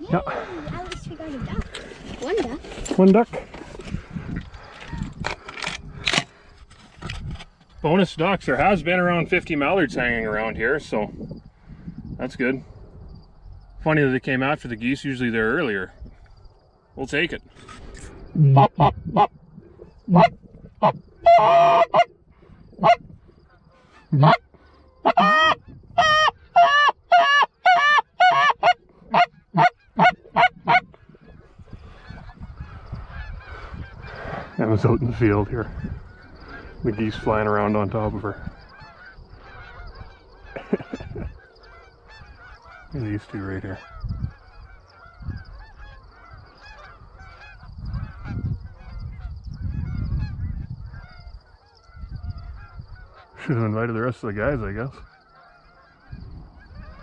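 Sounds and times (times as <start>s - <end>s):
low rumbling on microphone: 3.4s - 7.4s, 8.6s - 13.9s, 17.4s - 21.3s, 28.8s - 41.4s, 46.3s - 51.0s
goose honking: 18.4s - 19.3s, 20.1s - 22.1s, 22.8s - 23.0s, 23.7s - 53.8s, 54.4s - 57.0s.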